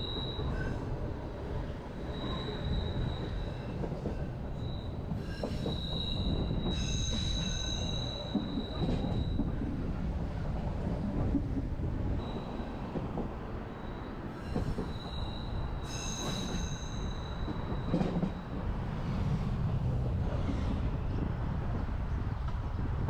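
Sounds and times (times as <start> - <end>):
high wheel squeal: 0.0 - 0.9, 1.9 - 9.5, 12.2 - 12.9, 13.6 - 18.5
train rumbling: 0.0 - 23.0.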